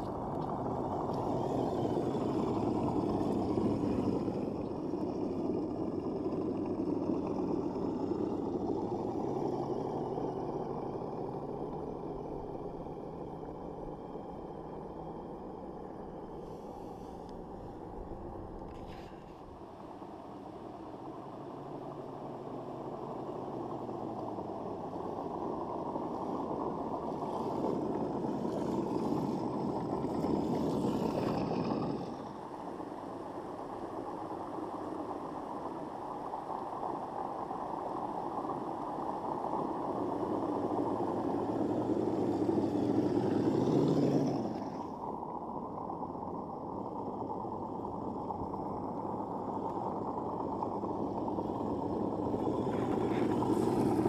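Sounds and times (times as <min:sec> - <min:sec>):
toy car motor running: 0:01.1 - 0:04.5.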